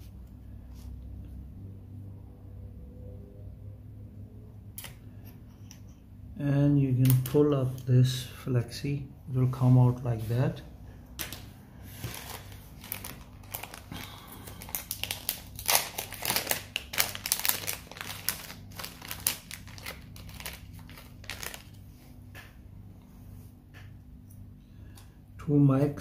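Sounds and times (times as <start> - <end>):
crinkly plastic rustling: 11.2 - 22.2.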